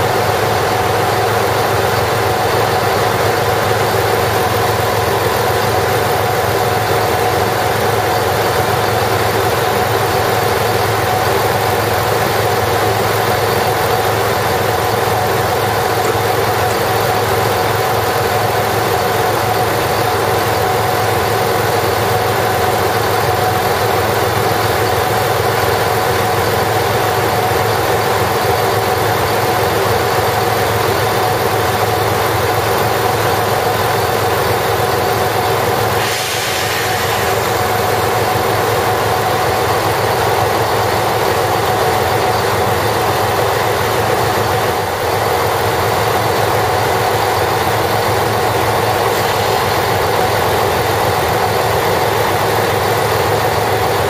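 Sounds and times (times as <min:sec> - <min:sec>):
diesel railcar engine idling: 0:00.0 - 0:54.0
hiss: 0:35.8 - 0:39.4.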